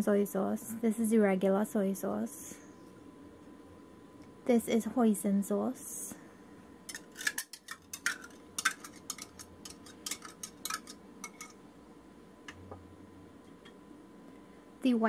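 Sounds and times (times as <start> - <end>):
whisk clicking against a bowl: 6.9 - 11.5.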